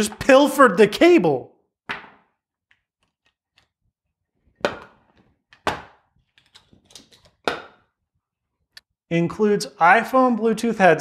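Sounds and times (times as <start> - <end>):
plastic packaging knocking: 4.6 - 6.0.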